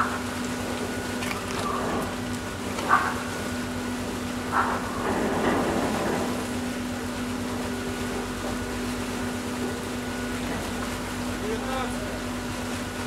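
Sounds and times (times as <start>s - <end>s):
ship machinery droning hum: 0.0s - 13.0s.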